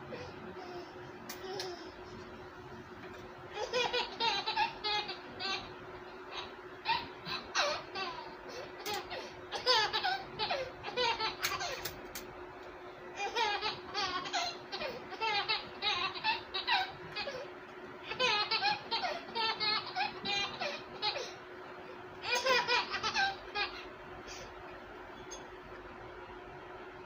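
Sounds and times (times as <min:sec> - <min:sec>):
baby laughing: 0:03.5 - 0:12.0, 0:13.2 - 0:21.4, 0:22.2 - 0:24.5.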